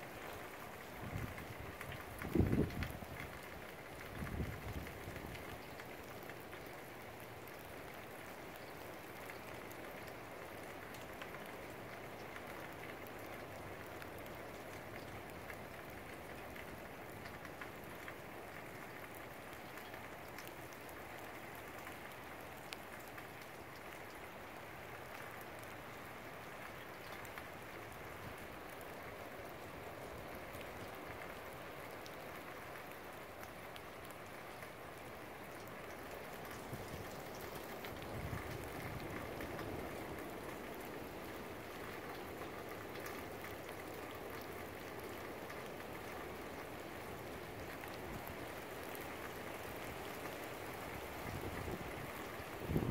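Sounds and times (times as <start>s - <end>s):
raindrops ticking on surfaces: 0.0s - 52.9s
steady rain hiss: 0.0s - 52.9s.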